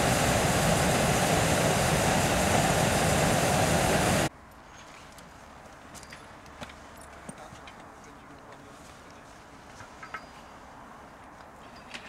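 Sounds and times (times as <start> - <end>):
propane burner blast: 0.0 - 4.3.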